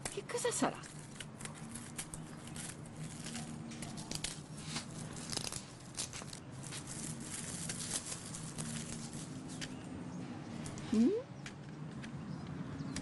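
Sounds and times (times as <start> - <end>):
packaging tearing and crinkling: 0.8 - 9.6.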